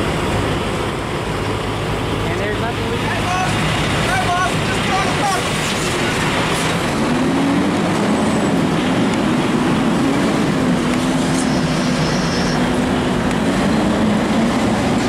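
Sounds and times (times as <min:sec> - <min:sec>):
diesel truck engine idling: 0:00.0 - 0:15.0.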